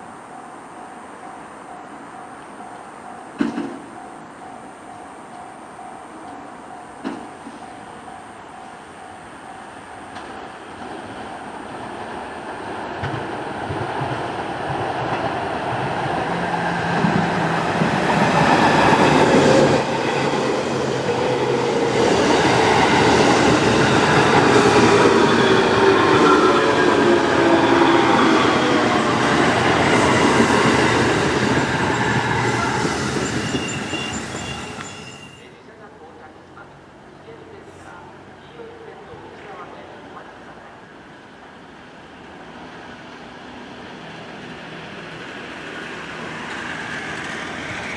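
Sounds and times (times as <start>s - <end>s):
electric train passing: 0.0s - 47.9s.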